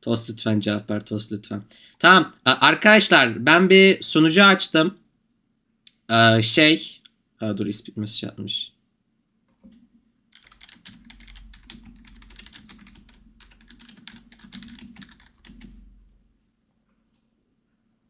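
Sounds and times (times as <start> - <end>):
keyboard typing clicks: 10.4 - 16.2.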